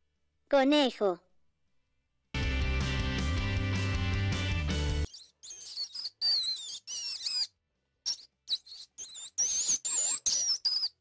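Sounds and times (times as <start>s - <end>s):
mouse squeaking: 5.0s - 11.0s.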